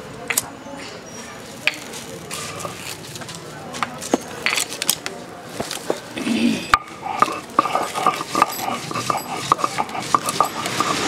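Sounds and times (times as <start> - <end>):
stone roller knocking and scraping: 3.8 - 5.0, 6.7 - 11.0.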